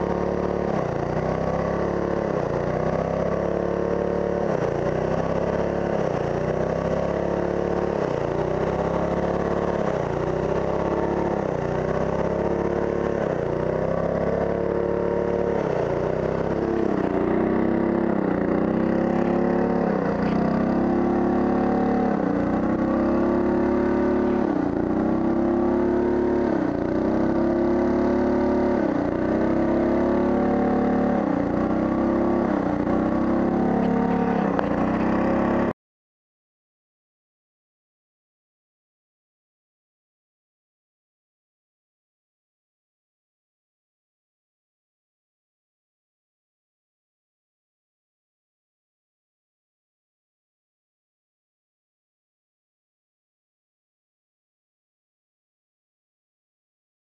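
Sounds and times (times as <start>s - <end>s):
pressure washer engine running: 0.0s - 35.7s.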